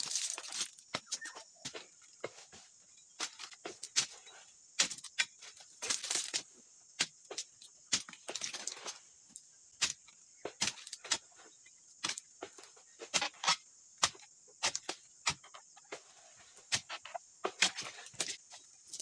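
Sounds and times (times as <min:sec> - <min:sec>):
chisel cutting palm fronds: 0:16.7 - 0:19.0.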